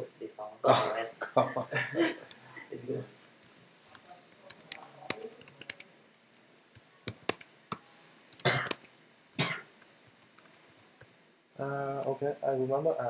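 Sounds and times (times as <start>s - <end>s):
keyboard key clicks: 3.4s - 11.1s.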